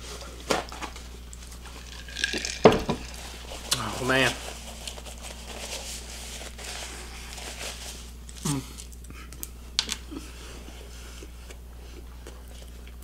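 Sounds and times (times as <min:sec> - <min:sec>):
paper wrapper crinkling: 0:00.2 - 0:09.0
person humming: 0:08.4 - 0:09.3
soft chewing and mouth clicks: 0:08.8 - 0:13.0.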